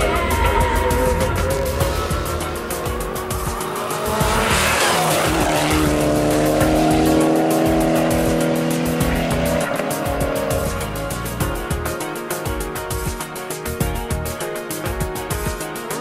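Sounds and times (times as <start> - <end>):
rally car engine: 0.0 - 12.2
background music: 0.0 - 16.0.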